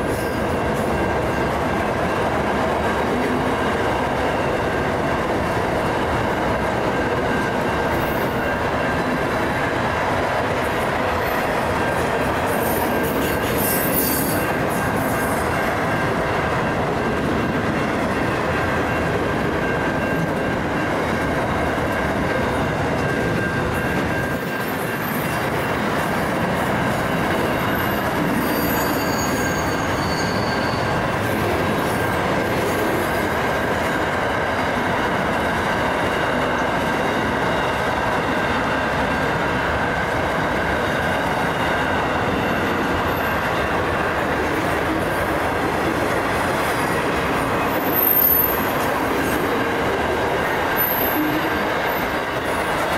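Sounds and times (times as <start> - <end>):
train wheels clattering on rails: 0.0 - 52.9
high-pitched wheel squeals: 12.5 - 15.6, 27.6 - 31.0, 50.8 - 52.0.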